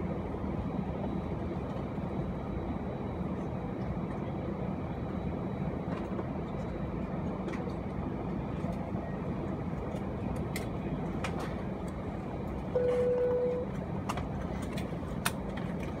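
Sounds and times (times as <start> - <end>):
aircraft cabin engine rumble: 0.0 - 16.0.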